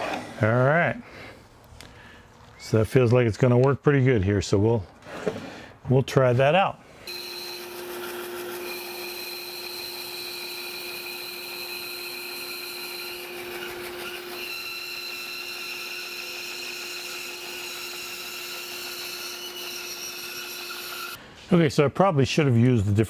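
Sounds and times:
band saw cutting wood: 0:07.1 - 0:21.2.

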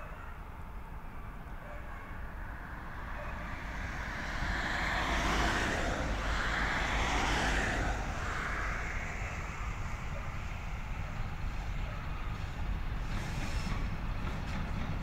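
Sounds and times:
steady low rumble: 0:02.2 - 0:13.0
car driving past: 0:02.3 - 0:11.1.

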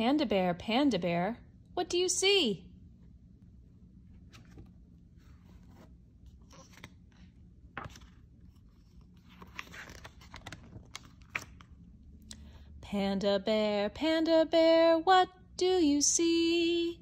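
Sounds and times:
book pages turning: 0:04.1 - 0:11.8
small page-handling clicks: 0:04.2 - 0:04.8, 0:05.6 - 0:12.5.

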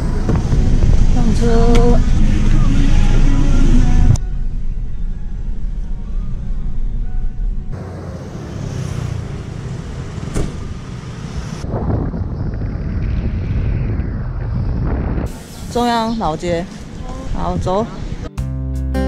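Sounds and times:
street traffic: 0:00.0 - 0:11.9, 0:15.3 - 0:18.3
low rumble inside moving van: 0:00.0 - 0:15.3
wind on microphone: 0:10.2 - 0:18.3.

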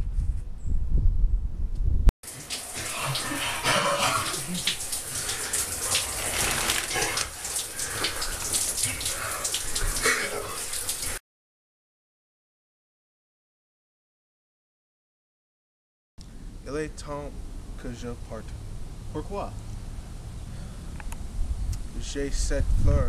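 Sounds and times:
wind rumble on microphone: 0:00.0 - 0:02.1, 0:20.2 - 0:23.0
shower water spraying: 0:02.2 - 0:11.2.

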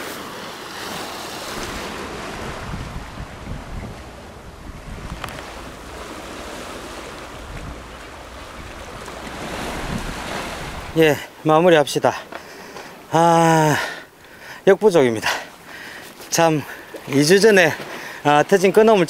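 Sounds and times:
sea washing against rocks: 0:00.0 - 0:19.0
wind buffeting microphone: 0:01.4 - 0:11.0.

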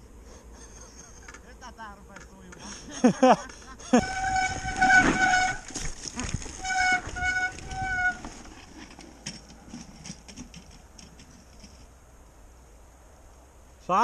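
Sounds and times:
bike clicking and rattling: 0:03.2 - 0:12.0
bike disc brakes squealing: 0:03.9 - 0:08.4.

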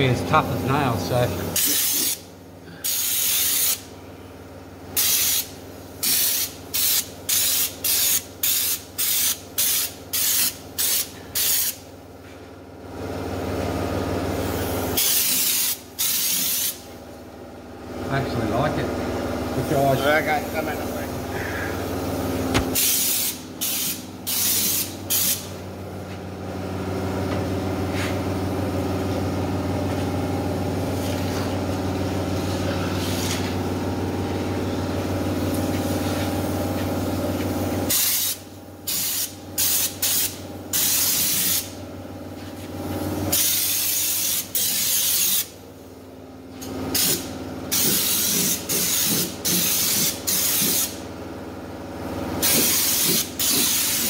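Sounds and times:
steady mechanical hum: 0:00.0 - 0:54.0
spray gun hissing bursts: 0:01.6 - 0:03.8, 0:05.0 - 0:11.8, 0:14.4 - 0:16.9, 0:20.4 - 0:25.5, 0:37.5 - 0:41.7, 0:43.3 - 0:45.6, 0:46.9 - 0:51.0, 0:52.4 - 0:54.0.

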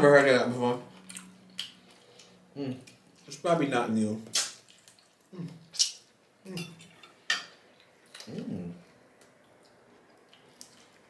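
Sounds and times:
wet lip smacks and sucking: 0:04.3 - 0:04.9, 0:05.7 - 0:06.0
person humming mm: 0:05.3 - 0:05.6, 0:08.2 - 0:08.8.

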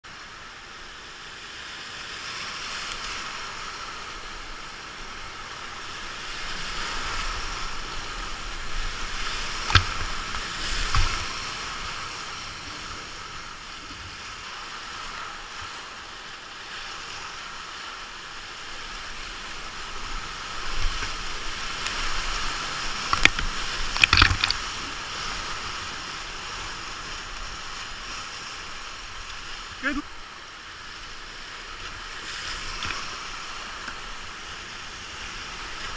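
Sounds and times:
rushing whitewater: 0:00.1 - 0:35.9
knocks and splashes: 0:09.1 - 0:11.5, 0:22.9 - 0:24.8.

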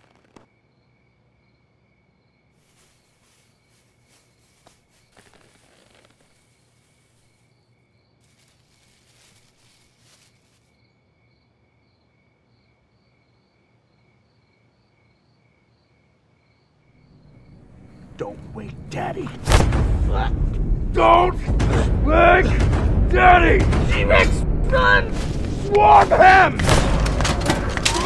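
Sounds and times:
insects chirping: 0:00.0 - 0:19.4
plastic garbage bag rustling: 0:02.6 - 0:07.5, 0:08.2 - 0:10.7.

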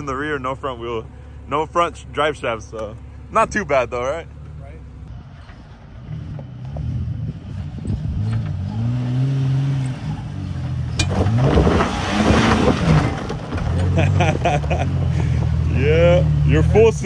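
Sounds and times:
engine revving under load: 0:04.2 - 0:17.0
tyres spinning throwing gravel: 0:11.1 - 0:15.6.

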